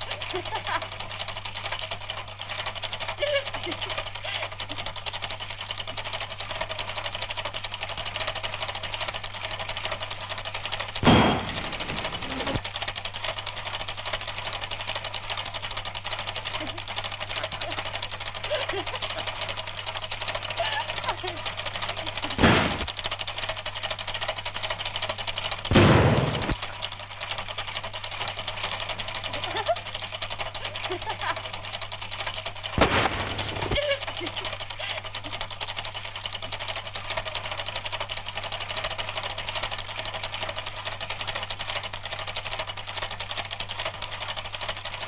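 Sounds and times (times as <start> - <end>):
film projector clatter: 0.0 - 45.0
comedy crash bangs: 11.0 - 12.6, 22.4 - 22.9, 25.7 - 26.6, 32.8 - 33.8
loud thump: 11.0 - 12.6, 22.4 - 22.9, 25.7 - 26.6
low steady hum: 11.0 - 12.8.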